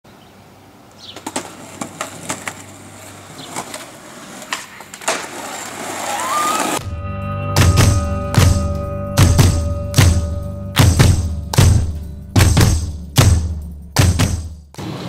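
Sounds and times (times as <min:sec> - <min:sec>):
skateboard wheels rolling: 0:01.0 - 0:06.8
skateboard clacks: 0:01.1 - 0:06.7
skateboard landing clack: 0:03.5 - 0:06.8.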